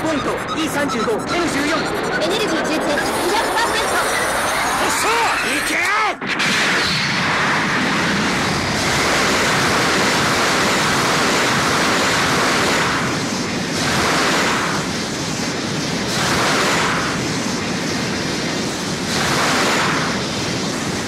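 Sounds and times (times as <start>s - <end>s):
rushing whoosh: 6.2s - 21.0s.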